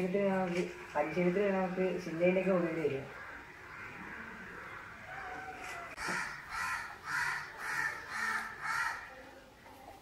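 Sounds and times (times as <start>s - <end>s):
crow cawing: 3.0s - 9.2s.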